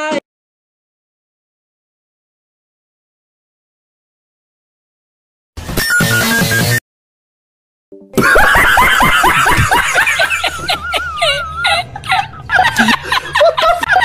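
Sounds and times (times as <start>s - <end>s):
high-pitched group giggling: 8.2s - 14.0s.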